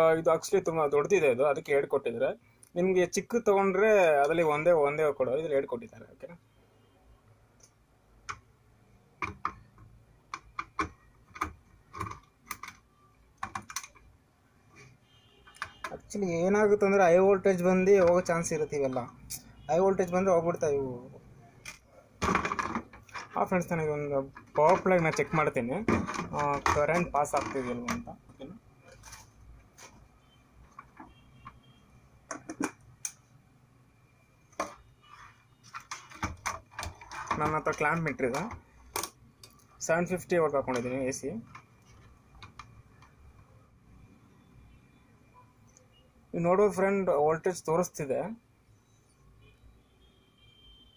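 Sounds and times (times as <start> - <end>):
hands clicking and tapping parts: 7.6 - 8.5, 9.1 - 14.2, 15.5 - 16.2, 17.6 - 19.5, 21.6 - 30.0, 30.6 - 31.7, 32.3 - 33.2, 34.5 - 34.9, 35.6 - 43.5
clicks and taps of small objects: 32.3 - 33.2.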